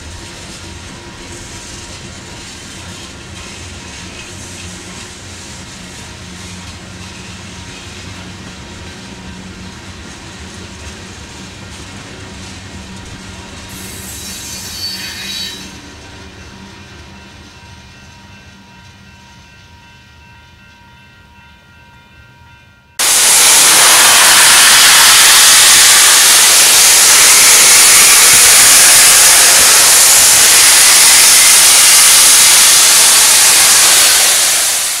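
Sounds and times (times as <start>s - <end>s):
freight train passing: 0.0s - 35.0s
steam venting hiss: 13.6s - 15.8s, 23.0s - 35.0s.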